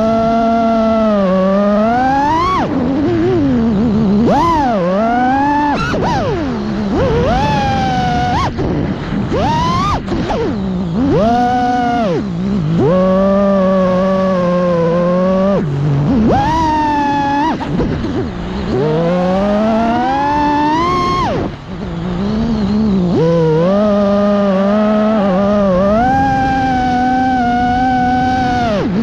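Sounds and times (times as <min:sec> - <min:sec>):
quadcopter motors whining: 0:00.0 - 0:29.0.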